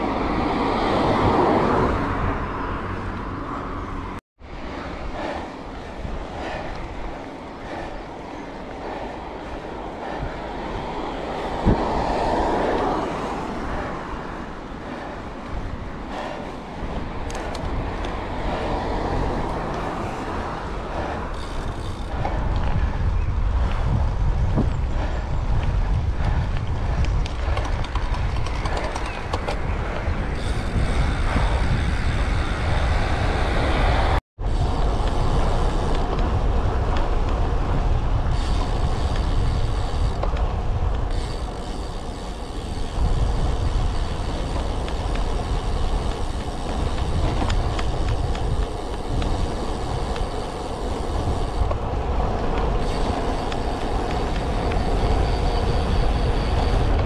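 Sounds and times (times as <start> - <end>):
bike tyres on paved road: 0.0 - 57.0
wind buffeting microphone: 0.0 - 57.0.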